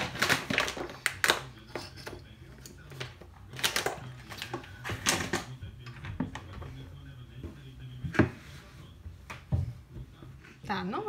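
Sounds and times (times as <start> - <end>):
kitchen items clicking and rustling: 0.0 - 6.8.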